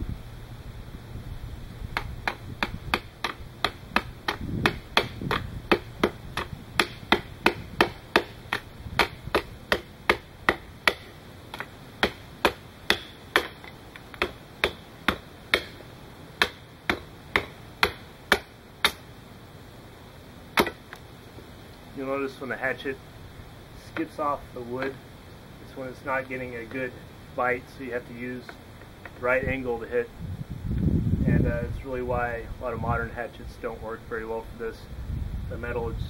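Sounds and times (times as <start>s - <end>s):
hatchet chopping wood: 2.0s - 19.1s, 20.6s - 21.0s, 24.8s - 25.0s.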